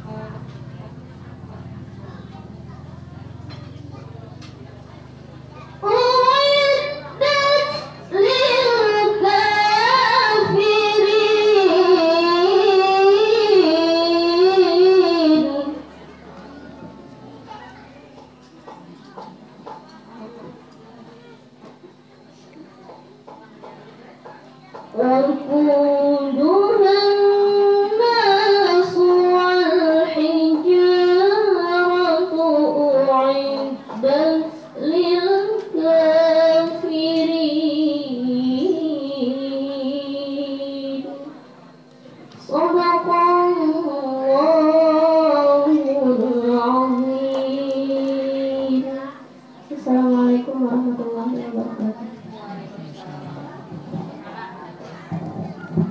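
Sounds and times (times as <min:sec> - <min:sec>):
girl reciting melodically: 0:05.0 - 0:16.2, 0:24.2 - 0:41.5, 0:42.3 - 0:54.1.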